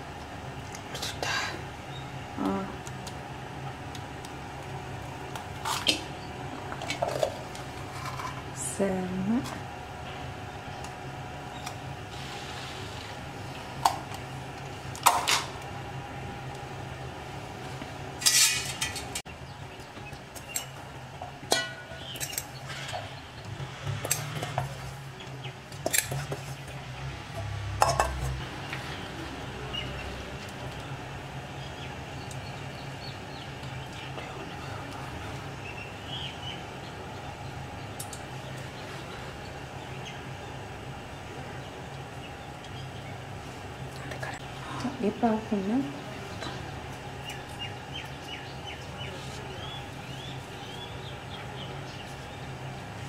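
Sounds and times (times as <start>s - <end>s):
steady low hum: 0.0s - 53.0s
small birds chirping: 19.3s - 23.7s, 28.6s - 53.0s.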